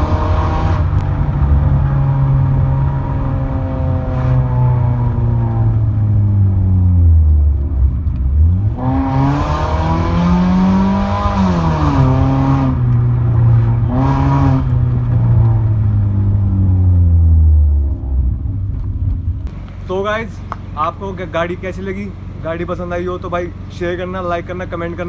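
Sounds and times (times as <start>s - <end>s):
car exhaust drone revving: 0.0s - 25.0s.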